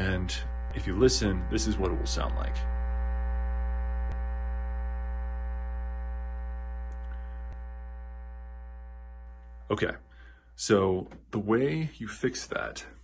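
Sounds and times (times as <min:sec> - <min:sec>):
speaker electrical hum: 0:00.0 - 0:13.0
faint ticks: 0:04.0 - 0:04.4, 0:06.8 - 0:07.7.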